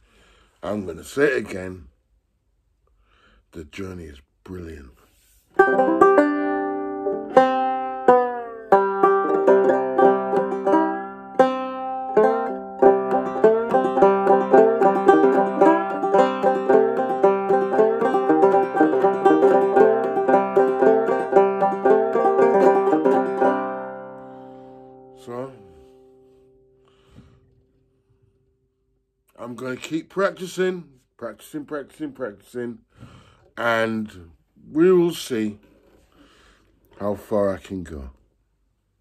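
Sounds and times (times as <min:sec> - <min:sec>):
banjo plucked notes: 0:05.5 - 0:26.3
banjo strings ringing out: 0:05.6 - 0:26.3.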